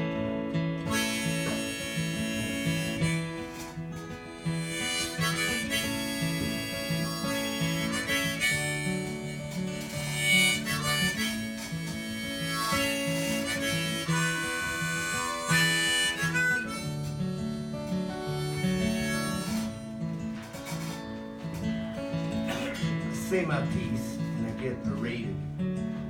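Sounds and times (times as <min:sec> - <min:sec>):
harmonica solo: 0:00.0 - 0:25.6
strummed acoustic guitar: 0:00.0 - 0:26.0.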